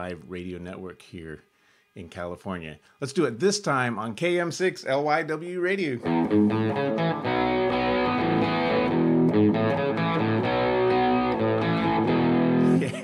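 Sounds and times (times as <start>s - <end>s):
distorted rock guitar riff: 6.0s - 13.0s.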